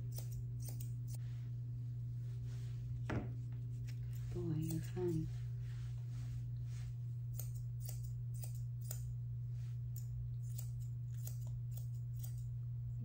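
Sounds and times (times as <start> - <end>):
shears snipping hair: 0.0 - 1.3, 3.7 - 12.6
steady low hum: 0.0 - 13.0.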